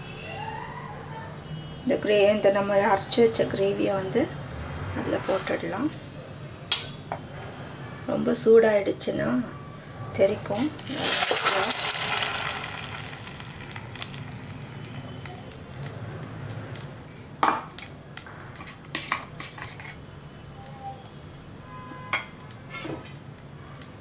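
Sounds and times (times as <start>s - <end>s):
paste sizzling in hot oil: 10.6s - 20.2s.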